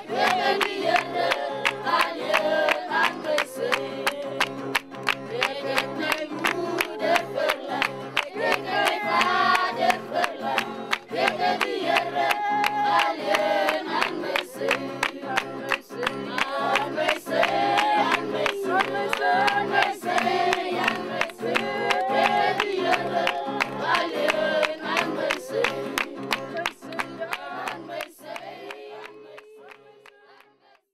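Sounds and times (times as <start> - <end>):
small choir singing: 0.0 - 4.6, 5.2 - 30.9
rhythmic accompaniment: 0.0 - 28.6.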